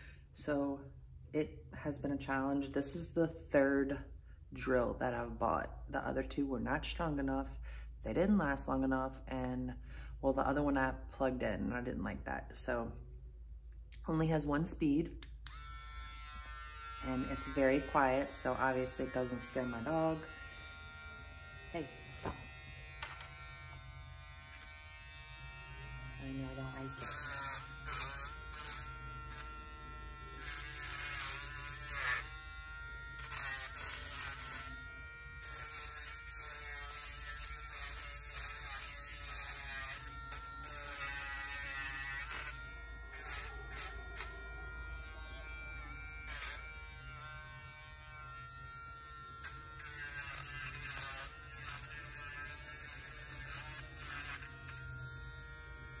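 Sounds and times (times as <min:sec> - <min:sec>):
nail grinder buzzing: 0:15.4 - 0:56.0
grinder drum rasping on toenail: 0:26.2 - 0:32.4, 0:33.1 - 0:44.4, 0:45.0 - 0:48.5, 0:49.4 - 0:54.9.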